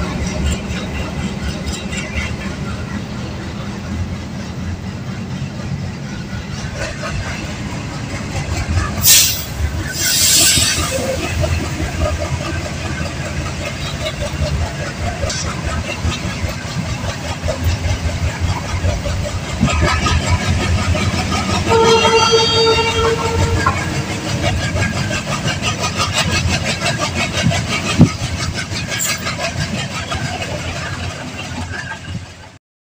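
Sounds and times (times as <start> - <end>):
train wheels clattering on rails: 0.0 - 32.6
train horn: 21.5 - 24.3.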